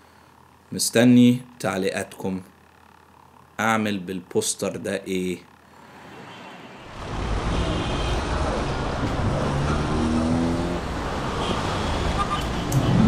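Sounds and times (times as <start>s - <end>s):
cars passing: 5.8s - 13.0s.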